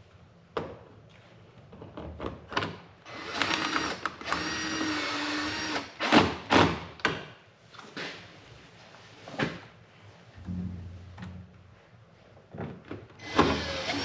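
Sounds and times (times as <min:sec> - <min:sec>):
cordless drill whining: 0:03.1 - 0:05.9, 0:13.2 - 0:14.0.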